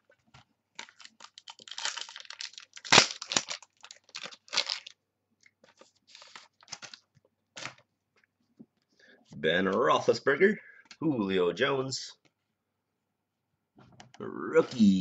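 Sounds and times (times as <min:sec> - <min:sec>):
foil wrapper crinkling: 0:00.8 - 0:05.0, 0:05.7 - 0:07.8.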